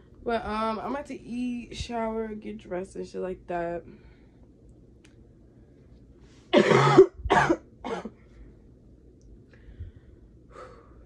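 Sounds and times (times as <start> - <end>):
woman coughing: 6.6 - 8.2.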